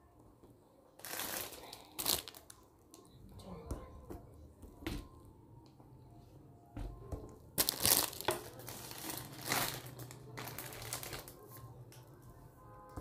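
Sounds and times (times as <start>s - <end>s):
packaging crinkling: 1.0s - 2.6s, 7.6s - 11.4s.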